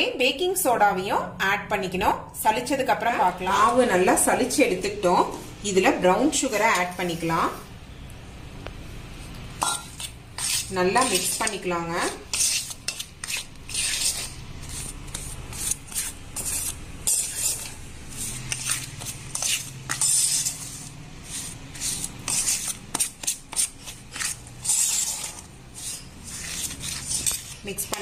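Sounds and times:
metal spoon scraping a steel bowl: 6.3 - 7.6, 9.6 - 28.0.

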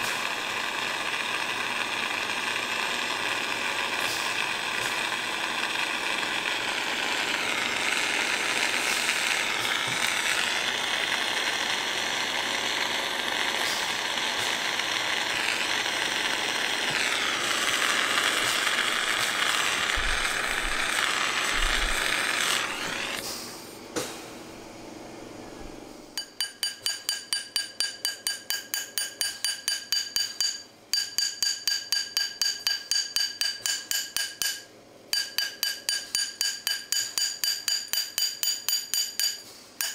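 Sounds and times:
gas torch flame rushing: 0.0 - 24.2
hammer tapping metal ring: 26.2 - 39.9.

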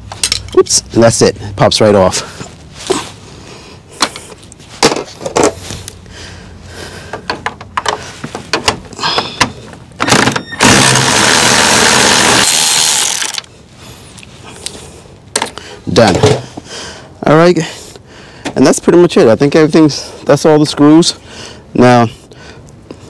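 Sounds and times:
power ratchet motor running: 10.1 - 13.5.

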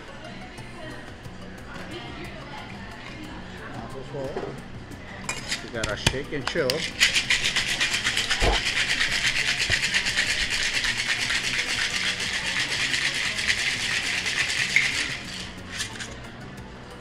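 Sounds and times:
ice rattling in cocktail shaker: 5.3 - 16.2.

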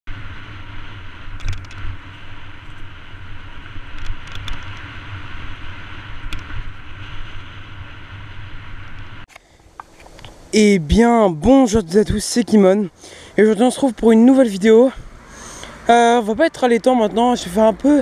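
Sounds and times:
wind rushing over camera: 0.1 - 16.0
mountain bike rumble and rattle: 0.1 - 18.0.

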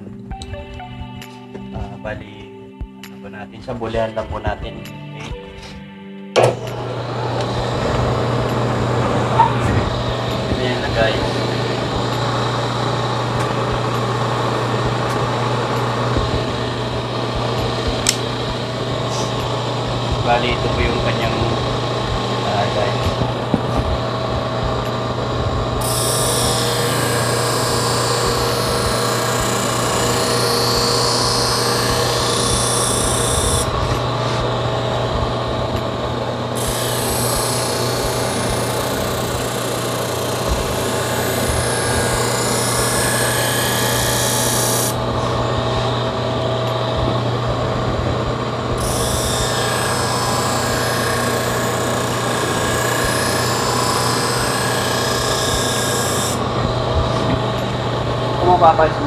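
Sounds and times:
blade grinding hiss: 6.4 - 45.6
bench grinder motor hum: 6.4 - 59.0.

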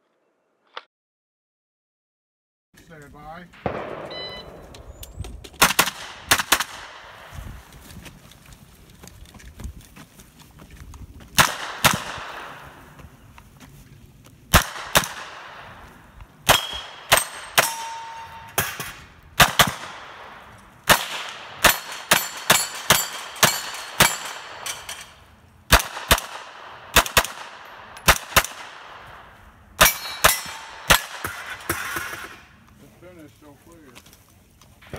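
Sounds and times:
rifle gunshots: 3.6 - 7.4, 11.4 - 13.0, 14.5 - 32.5
metallic ring of steel target: 16.5 - 19.1, 21.7 - 25.2, 29.8 - 32.4.

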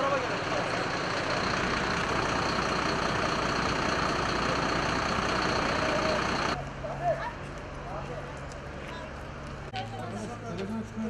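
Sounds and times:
heavy vehicle engine idling: 0.0 - 7.1.

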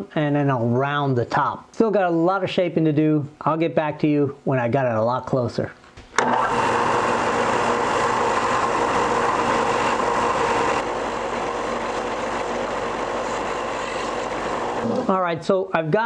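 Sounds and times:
belt sander motor whine: 6.2 - 14.8
grinding hiss of sanding wood: 11.6 - 14.8.

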